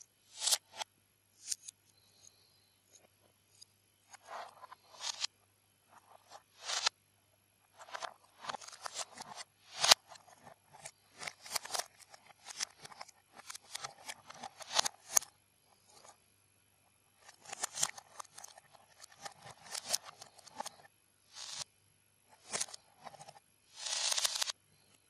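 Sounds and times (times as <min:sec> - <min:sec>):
plastic bricks clicking and rattling: 0:04.2 - 0:05.3, 0:07.8 - 0:15.3, 0:17.2 - 0:21.6, 0:22.4 - 0:24.6.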